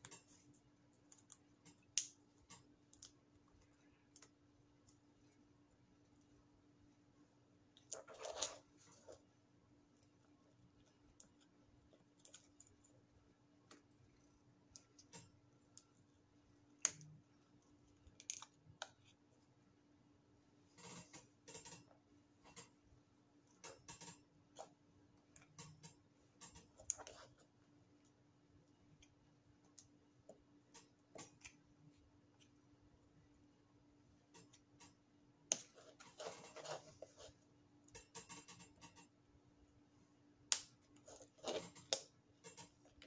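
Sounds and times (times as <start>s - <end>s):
faint steady hum: 0.0s - 43.0s.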